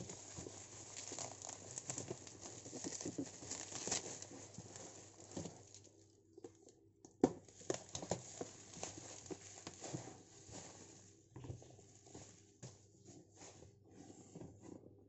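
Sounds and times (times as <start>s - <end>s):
bubble wrap crinkling: 0.0s - 6.7s, 7.5s - 12.6s.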